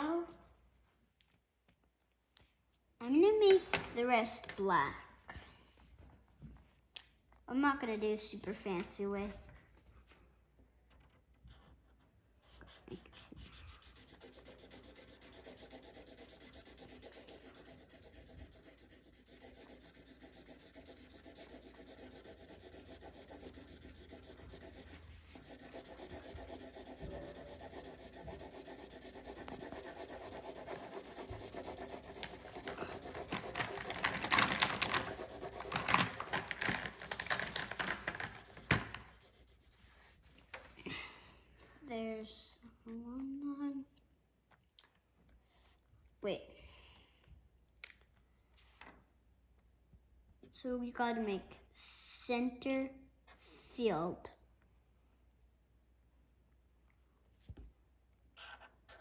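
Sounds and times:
marker scribbling on paper: 11.0 - 40.8, 58.4 - 59.0.

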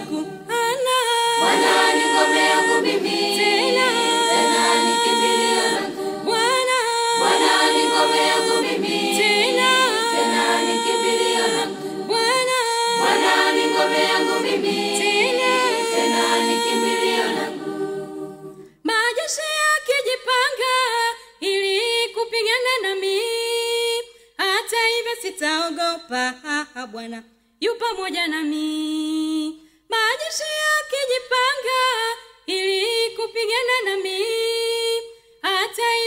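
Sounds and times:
choir singing a cappella: 0.0 - 19.0, 31.3 - 36.0.

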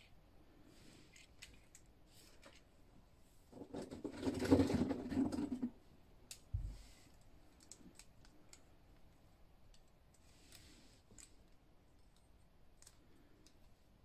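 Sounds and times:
plastic toys scraping on tiles: 3.6 - 5.7
faint plastic clicks: 6.2 - 13.8.

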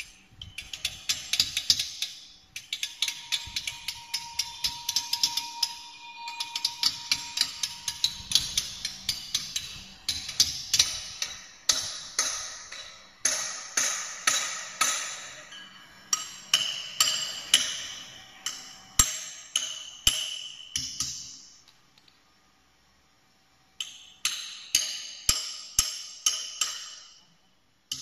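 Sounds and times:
hammer striking steel punch: 9.6 - 21.4.

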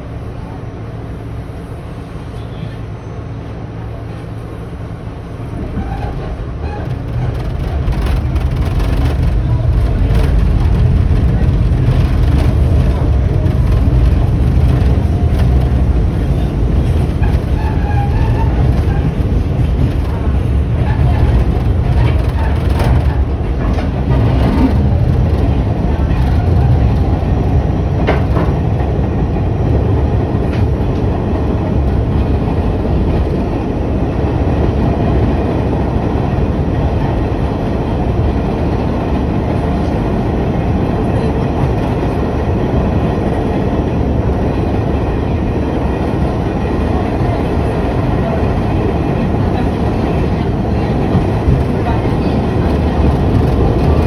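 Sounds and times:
subway train rumbling: 0.0 - 54.0.

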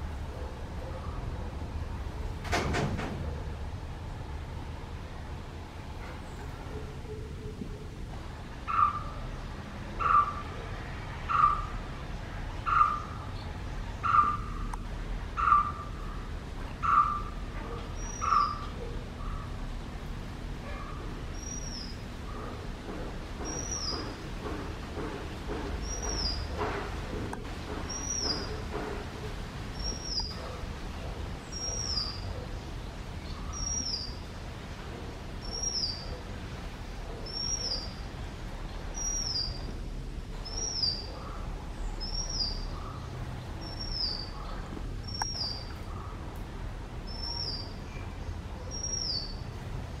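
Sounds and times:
bird calling: 8.7 - 9.3, 10.0 - 10.6, 11.3 - 11.8, 12.7 - 13.4, 14.0 - 14.7, 15.4 - 19.6.

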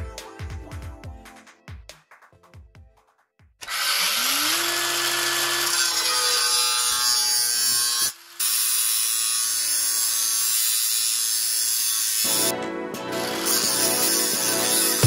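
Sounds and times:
angle grinder cutting steel: 3.6 - 15.0.

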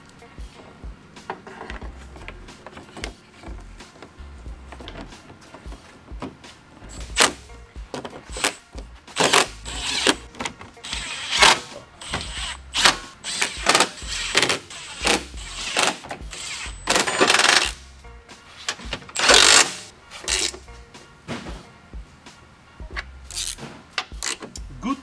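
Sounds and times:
cordless power tool driving bolts: 9.2 - 17.8, 19.1 - 20.6, 23.3 - 24.6.

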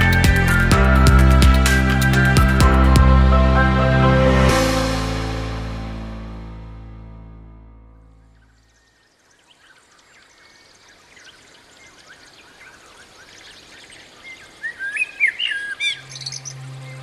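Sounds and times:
birds chirping and singing: 8.4 - 17.0.

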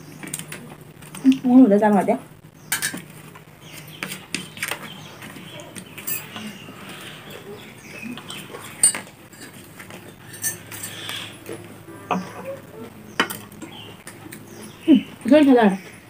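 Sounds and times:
fingers working rice on plates: 2.8 - 14.5
chewing: 4.0 - 14.7.

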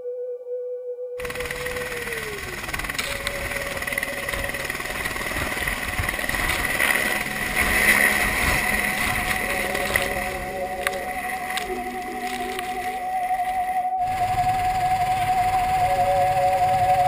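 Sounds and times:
helicopter taking off: 1.2 - 17.0.

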